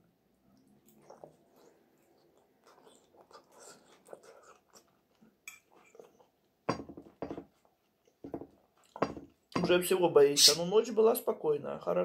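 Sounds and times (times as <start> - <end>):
person chewing food: 0.1 - 9.6
cutlery clink: 9.0 - 9.8.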